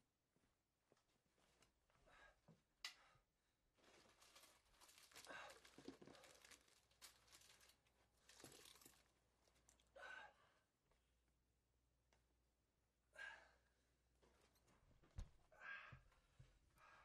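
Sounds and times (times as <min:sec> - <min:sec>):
rustling and rummaging: 0:03.8 - 0:09.6.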